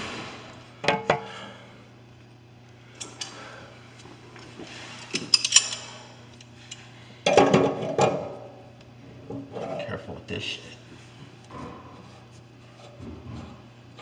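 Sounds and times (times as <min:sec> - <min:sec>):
low steady hum: 0:00.0 - 0:14.0
hand tools clinking on metal: 0:05.2 - 0:06.0.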